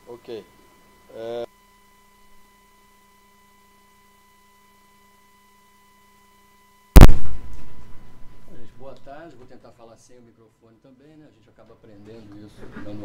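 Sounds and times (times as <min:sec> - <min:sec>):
electrical hum with high tone: 0:00.0 - 0:09.6
loud thump: 0:07.0 - 0:09.1.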